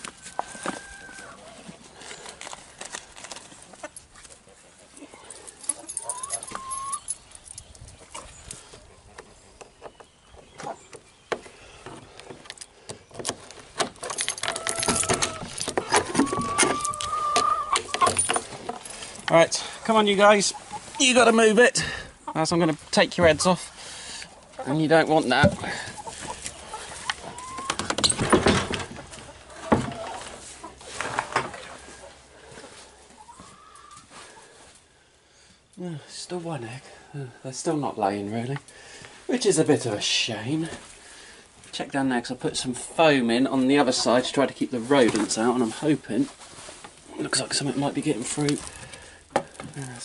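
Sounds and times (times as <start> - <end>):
wooden coop door knocking and rattling: 27.6 - 29.1.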